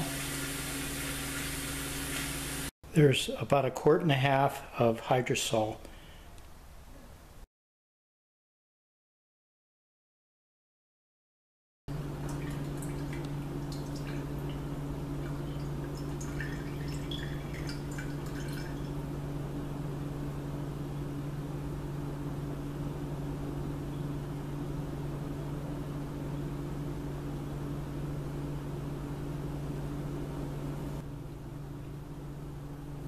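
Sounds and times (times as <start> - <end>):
low electrical hum: 0.0 - 7.5, 11.9 - 33.0
liquid dripping and trickling: 12.2 - 18.9.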